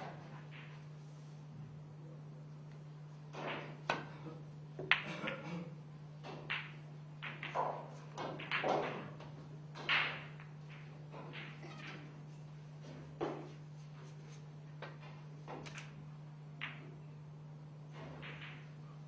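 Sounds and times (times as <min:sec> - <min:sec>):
steady low hum: 0:00.0 - 0:19.0
pool balls clicking: 0:03.3 - 0:05.4, 0:06.2 - 0:13.7, 0:16.6 - 0:17.2, 0:17.9 - 0:18.9
cue tip striking ball: 0:04.8 - 0:05.2, 0:06.2 - 0:12.3, 0:18.0 - 0:18.8
balls rolling and hitting cushions: 0:06.2 - 0:13.6.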